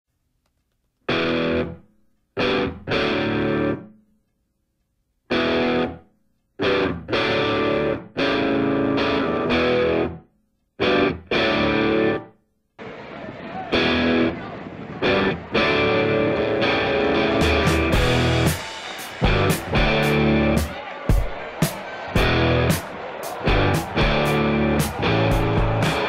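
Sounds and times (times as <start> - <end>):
distorted electric guitar chord stabs: 16.1 - 20.6, 23.5 - 26.0.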